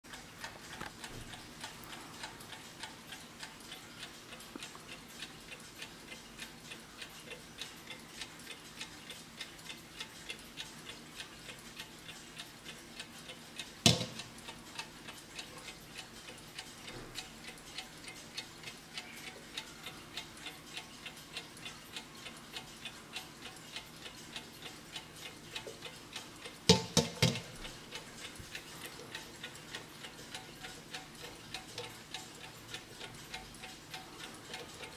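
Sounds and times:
alarm clock ticking: 0.1 - 34.9
clock knocking when handled: 13.8 - 14.3, 26.7 - 27.6.

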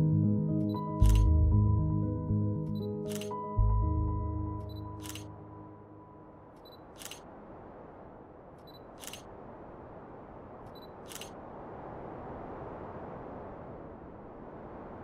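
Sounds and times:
camera shutter click: 1.0 - 1.3, 3.1 - 3.4, 5.0 - 5.3, 6.9 - 7.3, 9.0 - 9.3, 11.0 - 11.4.

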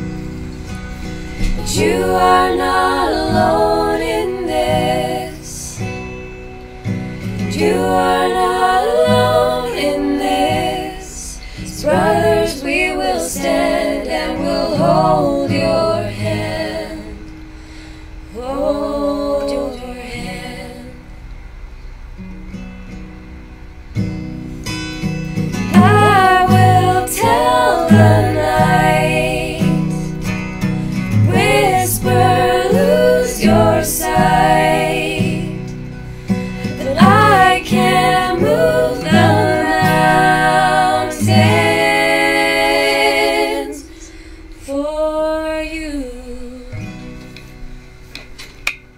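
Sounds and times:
acoustic guitar: 0.0 - 48.9
women singing in harmony: 1.3 - 6.0, 7.2 - 17.4, 18.3 - 21.1, 25.7 - 47.2.

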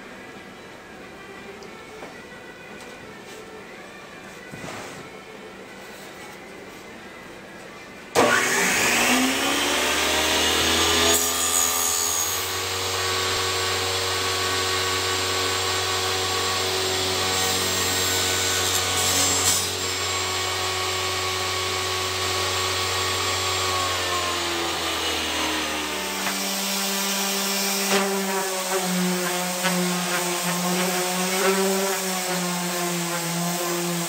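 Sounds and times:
power tool cutting wood: 8.2 - 34.0.

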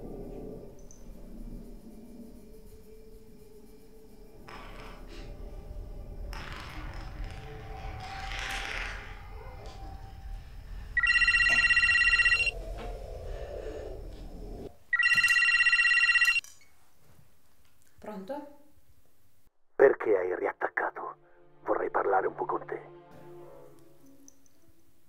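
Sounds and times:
mobile phone ringing: 11.0 - 12.6, 14.9 - 16.4.

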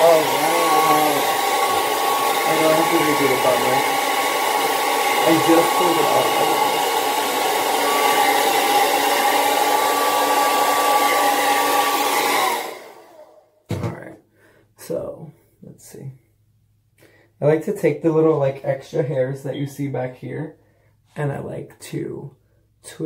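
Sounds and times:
hair dryer blowing: 0.0 - 13.4.

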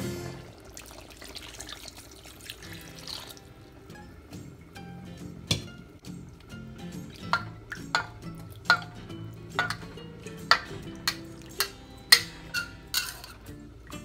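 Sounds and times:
soft background music: 2.6 - 14.0
metal ladle scraping steel wok: 9.6 - 13.6.

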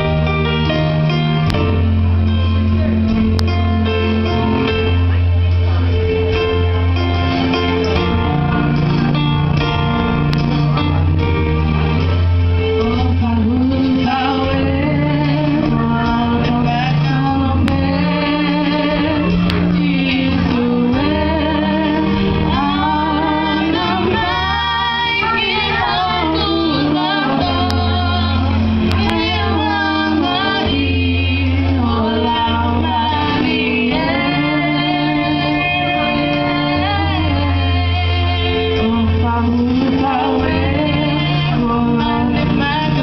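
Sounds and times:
electronic keyboard: 0.0 - 43.0
sustained bass line: 0.0 - 43.0
women singing through microphones: 12.7 - 43.0.

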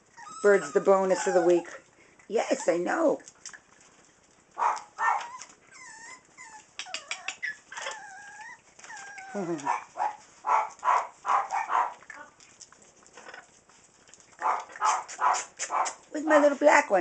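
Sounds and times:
puppies yapping: 0.0 - 1.8, 4.5 - 12.8, 13.8 - 16.6
puppies whining: 0.0 - 1.9, 4.6 - 12.4.

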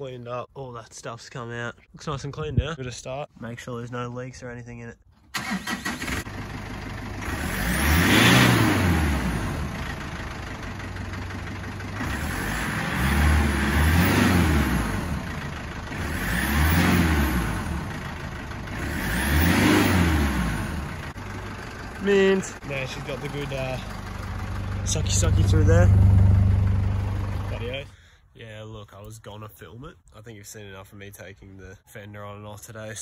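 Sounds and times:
diesel engine starting and revving: 5.3 - 28.1.

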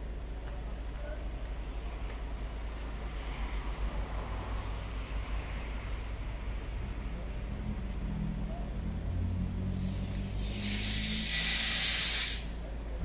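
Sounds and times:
car engine humming: 0.0 - 13.0
loud hiss: 9.7 - 12.7.

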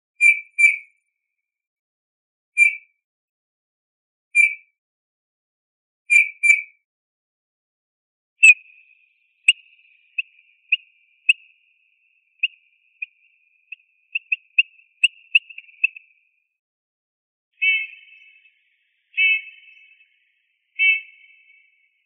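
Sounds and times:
bird piping calls: 8.4 - 16.3, 17.6 - 22.0.

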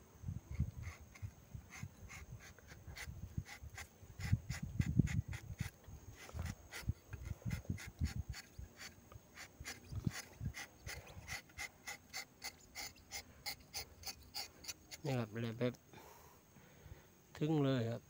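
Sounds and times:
knife rasping tree bark: 0.5 - 15.3.

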